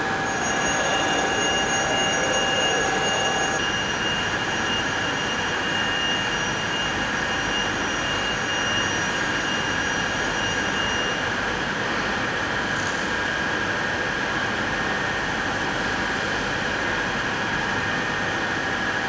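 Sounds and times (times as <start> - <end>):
steady rushing drone: 0.0 - 3.6
high held tones: 0.1 - 4.0.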